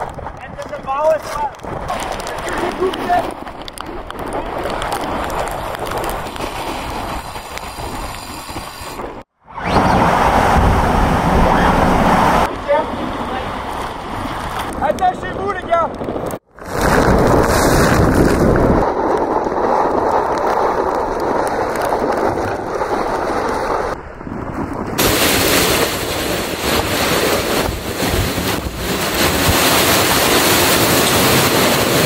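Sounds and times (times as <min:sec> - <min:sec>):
wind buffeting microphone: 0:00.0 - 0:32.0
seawater rushing across deck: 0:06.4 - 0:15.2, 0:25.0 - 0:32.0
hissing spray: 0:06.6 - 0:09.2.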